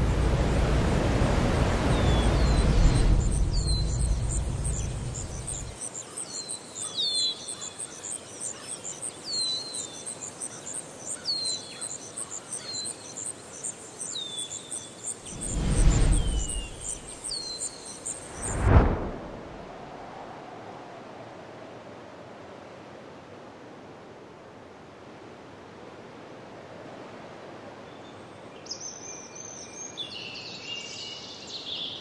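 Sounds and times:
low rumble: 0:00.0 - 0:05.7, 0:15.3 - 0:17.1, 0:18.3 - 0:20.0
whooshes: 0:00.0 - 0:05.7, 0:15.2 - 0:17.4, 0:18.2 - 0:20.3
crickets chirping: 0:00.0 - 0:11.2, 0:11.8 - 0:18.6.

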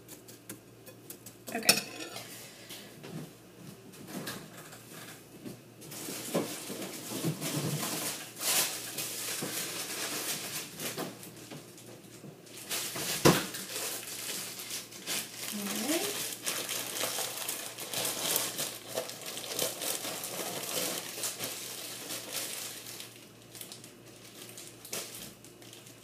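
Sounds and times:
dishes clattering: 0:01.5 - 0:02.3.

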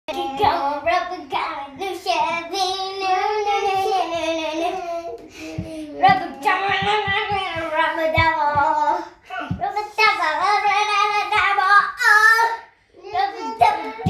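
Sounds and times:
child singing: 0:00.1 - 0:14.0
soft low thumps: 0:05.4 - 0:10.8.

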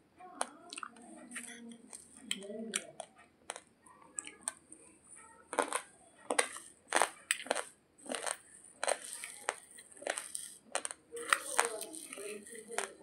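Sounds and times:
rice grains crunched between teeth: 0:05.5 - 0:13.0.

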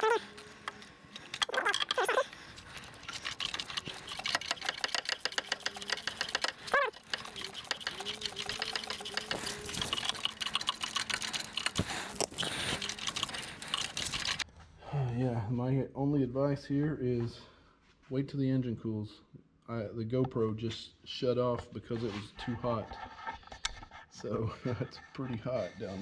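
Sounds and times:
socket ratchet clicking: 0:00.0 - 0:14.4.

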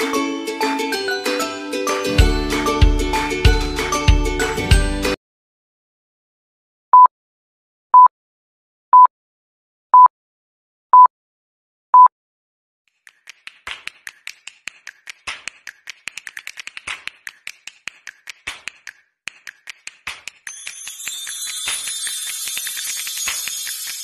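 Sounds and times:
rapid sharp clicks: 0:13.0 - 0:20.5
bright jingling shimmer: 0:20.5 - 0:24.0.

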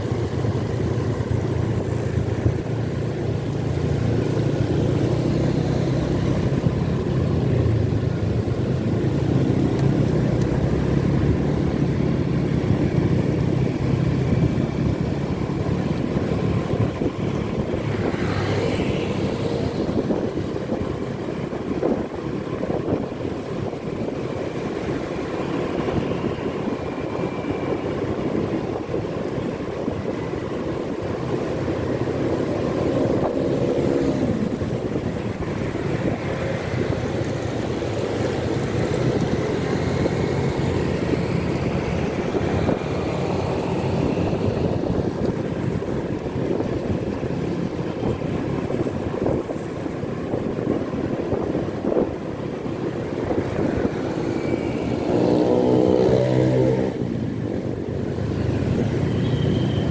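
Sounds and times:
car engine and tyres on wet road: 0:00.0 - 0:59.9
surrounding traffic: 0:00.0 - 0:59.9.

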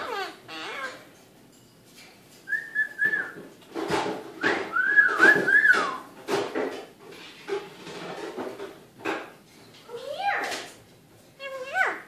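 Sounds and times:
parrot chattering: 0:00.0 - 0:01.2
parrot whistling: 0:02.5 - 0:03.4, 0:04.7 - 0:06.1.

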